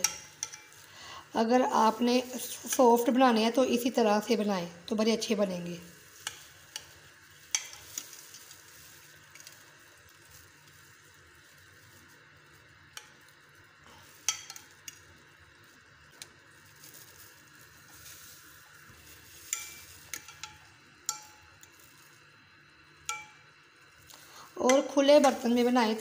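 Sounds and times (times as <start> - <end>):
soft wet stirring: 5.9 - 22.2.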